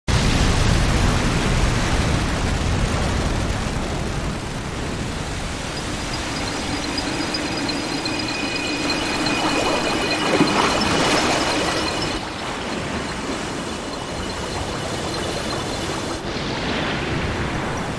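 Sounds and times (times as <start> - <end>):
low hum: 4.8 - 16.3
thin high ringing tones: 5.1 - 16.4.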